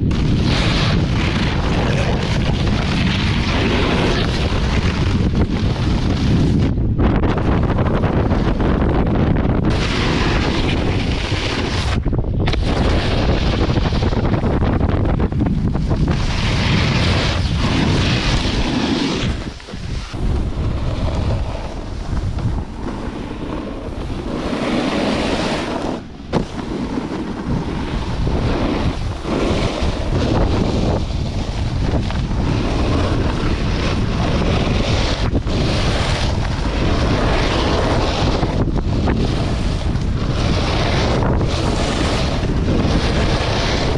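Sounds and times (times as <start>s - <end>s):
snowboard scraping on snow: 0.0s - 43.9s
wind rushing over microphone: 0.0s - 43.9s.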